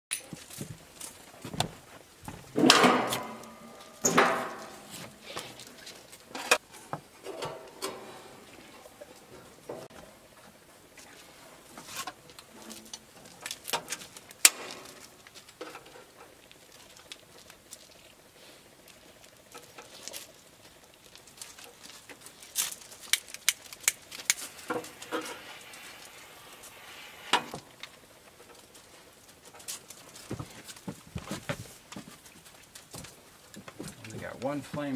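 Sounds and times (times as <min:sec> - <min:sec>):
gas stove clicks and metal knocks: 0:02.6 - 0:04.9.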